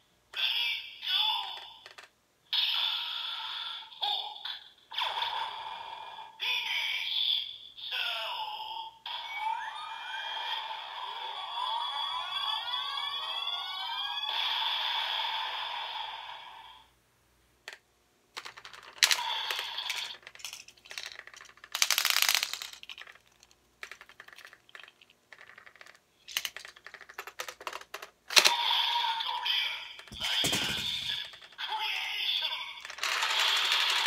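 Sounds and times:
plastic clicks and rattles: 0:01.8 - 0:02.1, 0:18.4 - 0:28.5, 0:30.0 - 0:31.6
toy electronic sound effect: 0:18.5 - 0:22.8, 0:26.3 - 0:34.0.

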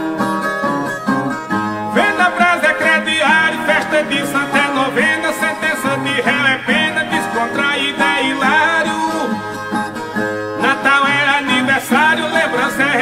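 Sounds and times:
plucked string instruments: 0:00.0 - 0:13.0.

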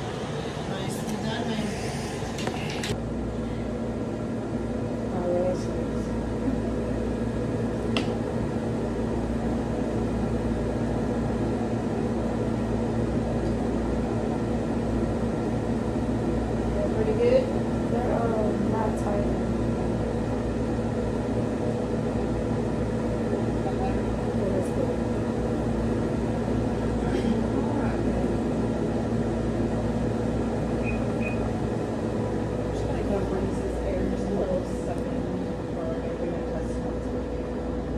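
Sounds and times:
faint airy rush: 0:00.0 - 0:04.6
machine fan humming: 0:00.0 - 0:37.9.

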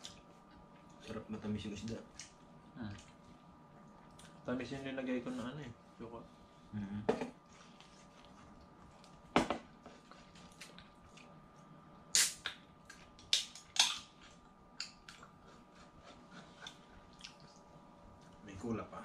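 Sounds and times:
eating smacks and clicks: 0:12.2 - 0:17.6.

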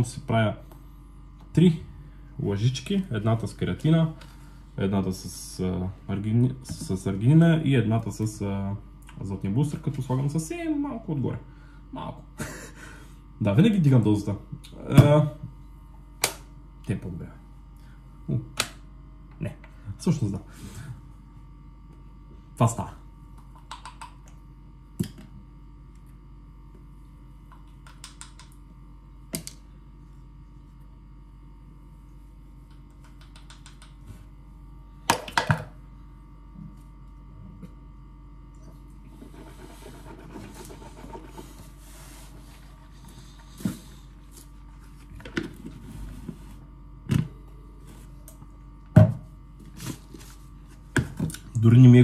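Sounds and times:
low steady hum: 0:00.0 - 0:52.0
plastic scoops clicking and tapping: 0:32.7 - 0:34.0.

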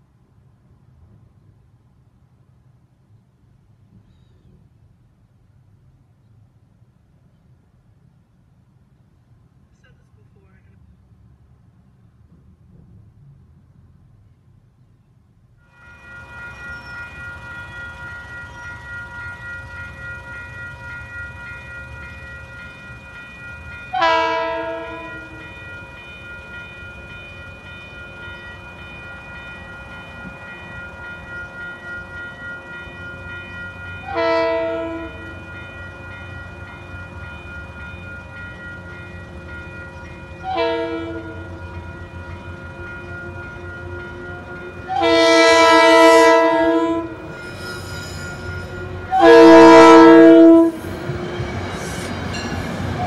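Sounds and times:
crossing warning bells ringing: 0:15.6 - 0:53.0
train horn blasts: 0:23.9 - 0:25.5, 0:34.0 - 0:35.5, 0:40.4 - 0:41.6, 0:42.8 - 0:47.4, 0:48.4 - 0:51.8.

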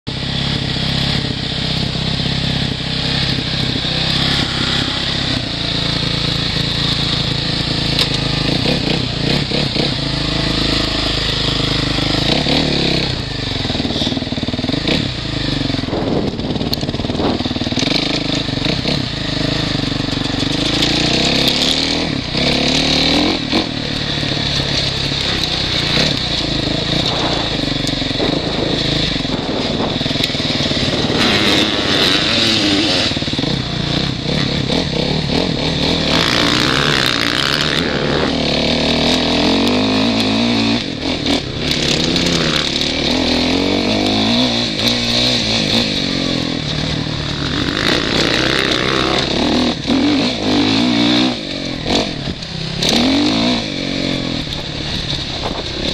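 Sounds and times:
motorbike engine revving: 0:00.0 - 0:55.9
rushing noise: 0:22.6 - 0:33.5.

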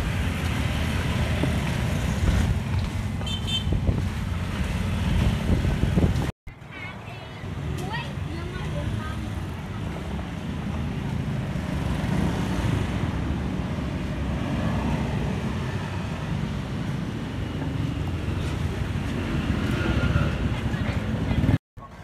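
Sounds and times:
wind on microphone: 0:00.0 - 0:06.3
street traffic: 0:00.0 - 0:22.0.

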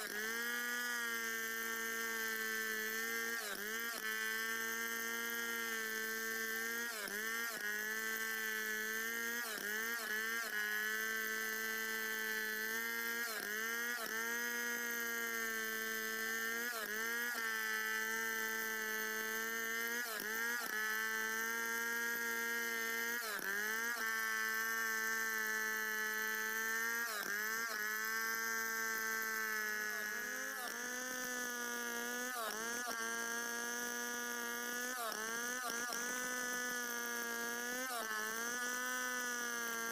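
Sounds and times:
chainsaw cutting log: 0:00.0 - 0:39.9.

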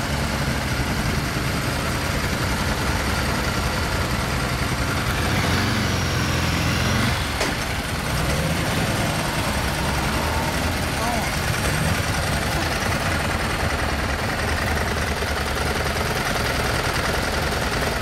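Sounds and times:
motorcycle engines idling: 0:00.0 - 0:18.0.

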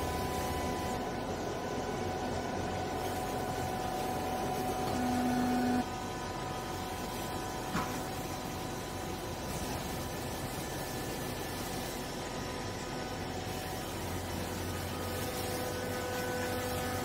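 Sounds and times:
loud steady tone: 0:00.0 - 0:06.9
hydraulic baler humming: 0:00.0 - 0:17.0.

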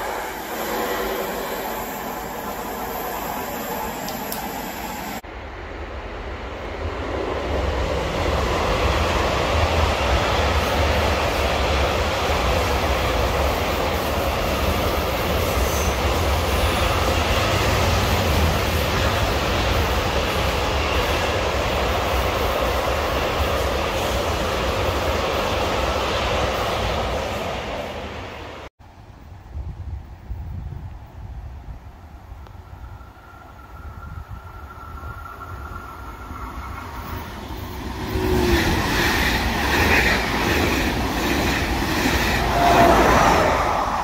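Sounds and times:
train wheels rumbling on bridge: 0:33.3 - 0:44.0.

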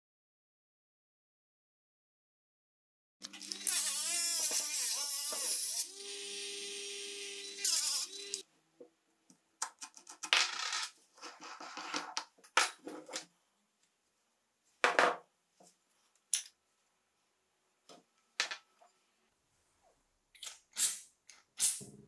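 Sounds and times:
electric tool motor whine: 0:03.3 - 0:08.4.

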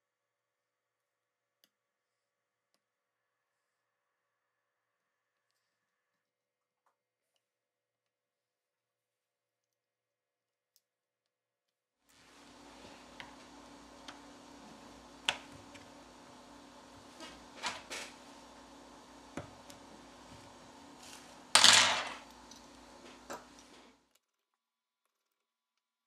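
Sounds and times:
steady low hum: 0:12.2 - 0:24.0.

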